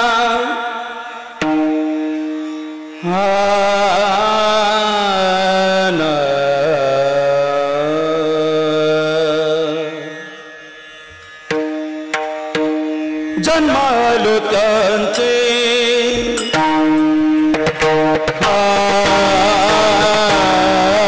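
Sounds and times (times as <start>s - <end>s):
man singing: 0.0s - 1.9s, 3.0s - 10.2s, 13.3s - 21.0s
sharp percussive strikes: 1.4s - 2.1s, 11.0s - 21.0s.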